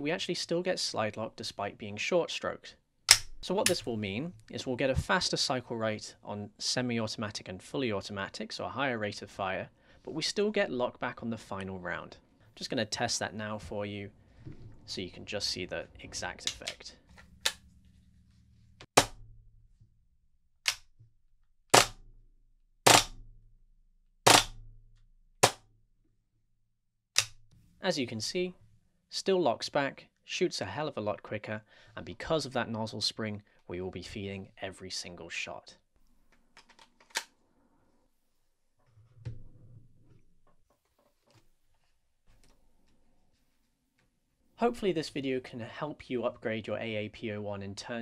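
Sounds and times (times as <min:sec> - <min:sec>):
airsoft pistol shots: 0:21.7 - 0:22.0, 0:22.9 - 0:23.2, 0:24.3 - 0:24.6.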